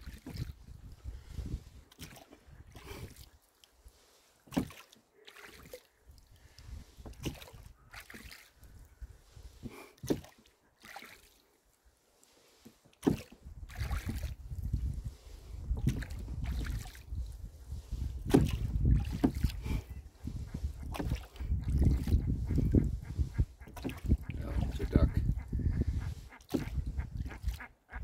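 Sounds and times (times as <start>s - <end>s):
wind buffeting microphone: 0.0s - 3.1s, 6.4s - 7.9s, 13.4s - 28.0s
oar blades dipping in water: 0.0s - 25.4s, 26.0s - 27.7s
oars knocking in oarlocks: 4.5s - 5.0s, 9.6s - 10.5s, 12.7s - 14.3s, 18.2s - 19.9s, 20.6s - 24.4s, 26.3s - 27.4s.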